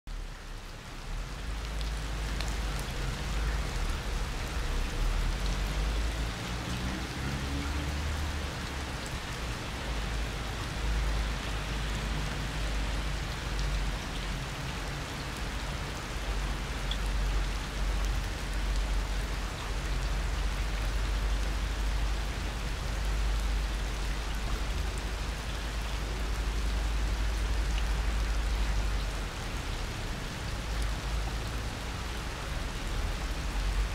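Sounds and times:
rain falling on concrete: 0.1s - 33.9s.

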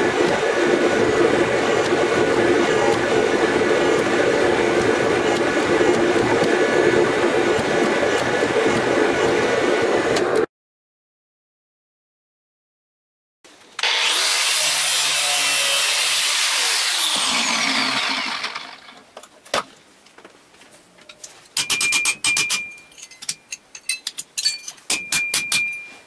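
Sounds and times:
angle grinder cutting steel: 13.8s - 19.0s
grinder spinning down whine: 13.8s - 19.0s
metal taps and clinks: 21.0s - 26.0s.

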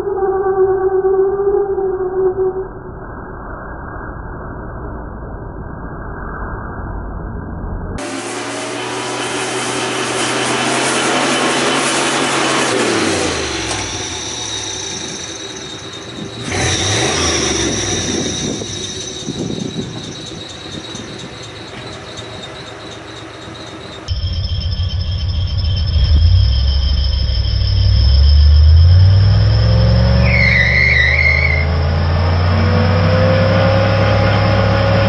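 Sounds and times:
deep engine rumble: 4.3s - 35.0s
pickup engine revving: 8.0s - 23.9s.

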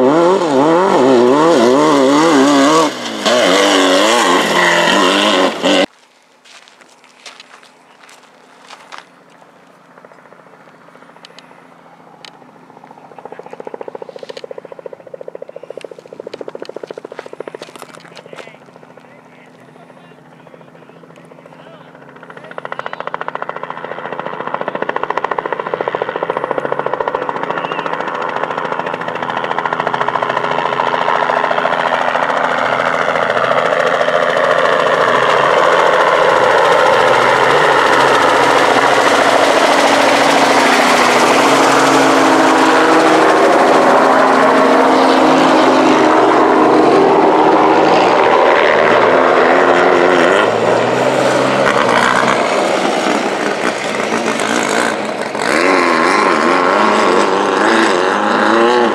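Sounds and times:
helicopter rotor chop: 0.0s - 5.9s, 7.6s - 58.9s
race car engines running hard: 0.0s - 5.9s, 7.7s - 58.9s
race car passing close: 0.0s - 5.9s, 22.3s - 58.9s.

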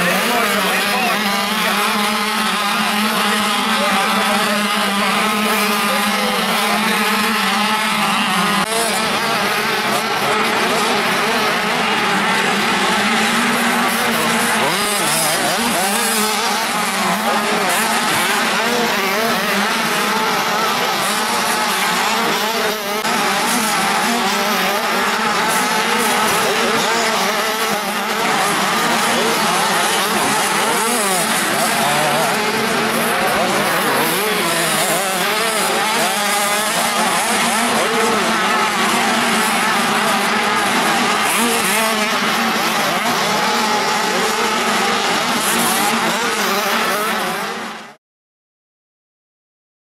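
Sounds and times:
dirt bike engines revving: 0.0s - 48.0s.

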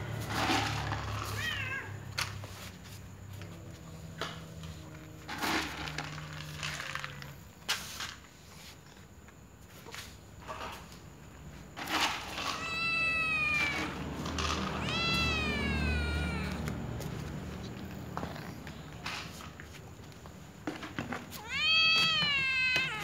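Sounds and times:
cat meowing: 1.2s - 2.0s, 12.2s - 17.2s, 21.3s - 23.0s.

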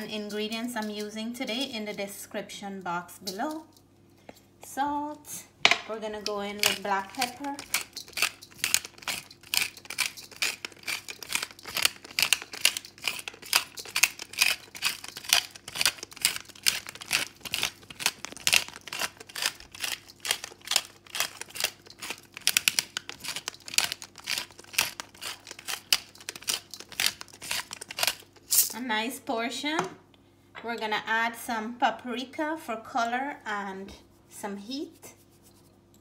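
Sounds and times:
pepper mill grinding: 0.0s - 3.8s, 6.1s - 28.8s.

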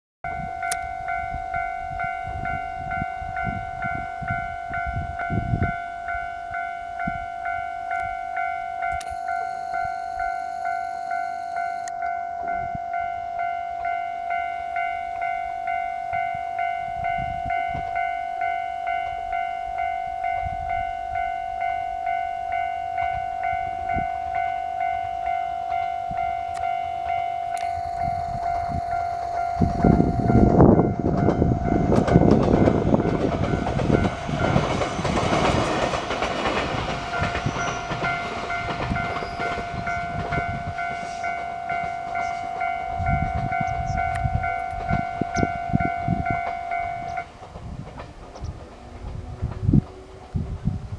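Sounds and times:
level crossing bell ringing: 0.3s - 34.8s, 36.1s - 47.3s
train wheels clattering on rails: 25.7s - 50.9s.

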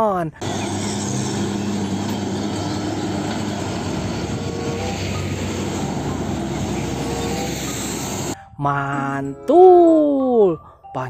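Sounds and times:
trucks driving past: 0.4s - 8.4s.

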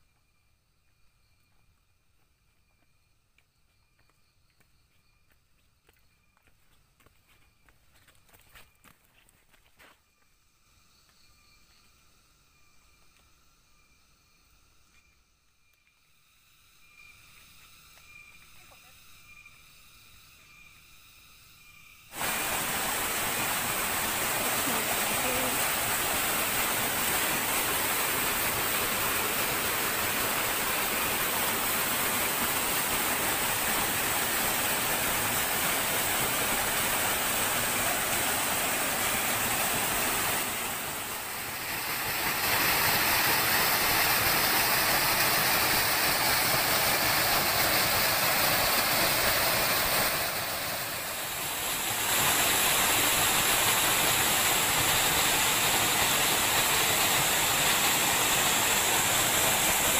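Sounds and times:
water rushing over rocks: 22.2s - 59.9s.

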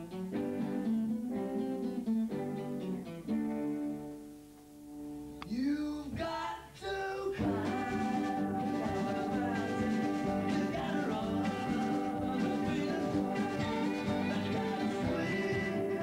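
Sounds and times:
acoustic guitar picking notes: 0.0s - 6.6s, 7.4s - 16.0s
person singing: 5.4s - 16.0s.

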